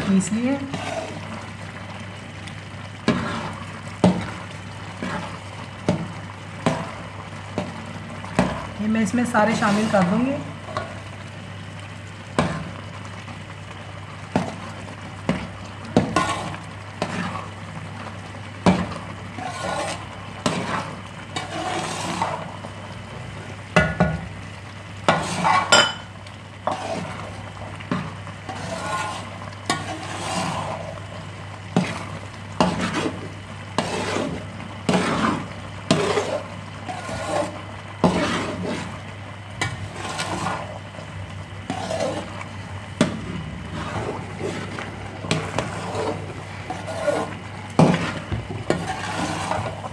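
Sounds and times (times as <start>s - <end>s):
faint sizzle: 0.0s - 49.9s
metal spoon scraping a pot: 19.4s - 22.4s, 28.5s - 30.8s, 35.9s - 38.9s, 41.7s - 42.3s, 43.7s - 49.8s.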